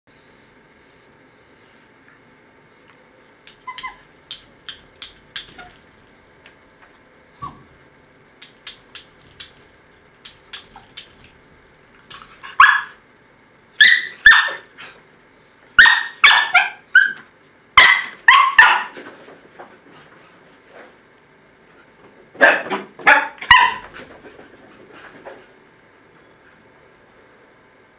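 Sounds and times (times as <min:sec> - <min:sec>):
dog whining in high squeaks: 0:00.1 - 0:01.7, 0:02.6 - 0:04.1, 0:06.9 - 0:07.7, 0:10.3 - 0:10.9, 0:13.8 - 0:14.6, 0:15.4 - 0:17.3
dog barking sharply: 0:15.8 - 0:16.8, 0:17.8 - 0:19.0, 0:22.4 - 0:23.9.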